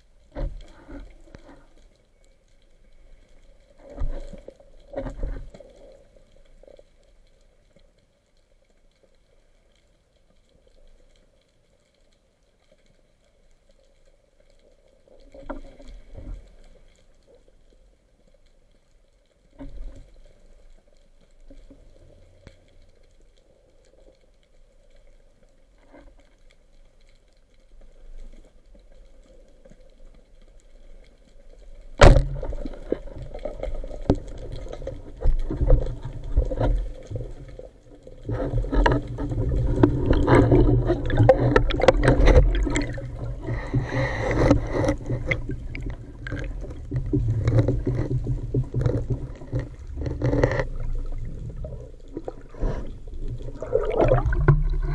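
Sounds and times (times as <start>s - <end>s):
underwater scuffling: 31.9s - 54.9s.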